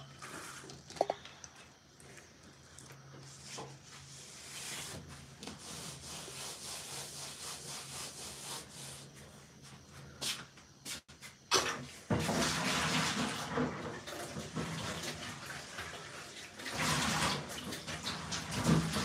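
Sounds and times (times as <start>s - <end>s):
irregular scraping strokes: 3.2s - 11.4s.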